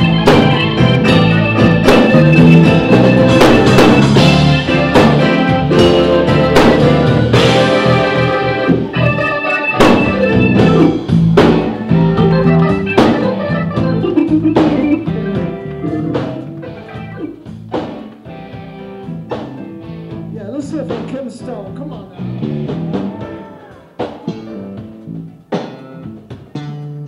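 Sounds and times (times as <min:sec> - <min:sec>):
strong drum hits: 0:00.0 - 0:09.2, 0:09.8 - 0:12.1
live blues band: 0:00.0 - 0:27.0.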